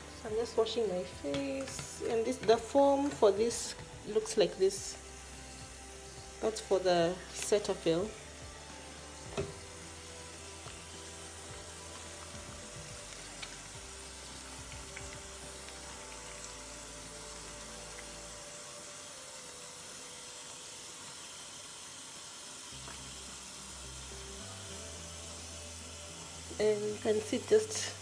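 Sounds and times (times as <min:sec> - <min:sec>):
tap running into sink: 0:01.3 - 0:04.0, 0:09.3 - 0:09.7.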